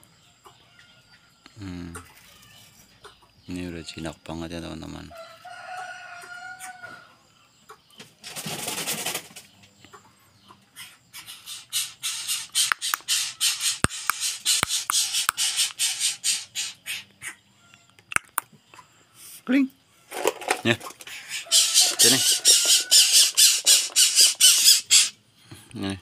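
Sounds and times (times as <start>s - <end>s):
bird begging with raspy calls: 10.4s - 19.0s, 21.0s - 25.2s.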